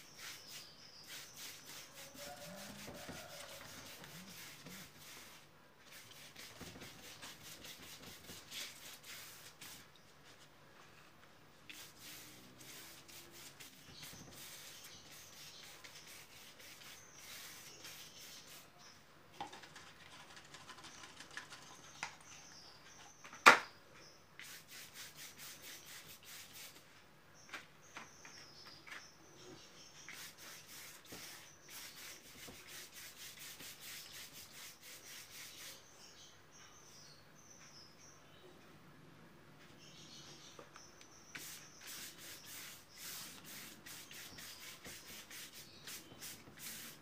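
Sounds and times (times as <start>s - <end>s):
pastel stick scratching on paper: 0.0s - 9.8s, 11.7s - 18.6s, 30.2s - 35.8s, 41.4s - 47.0s.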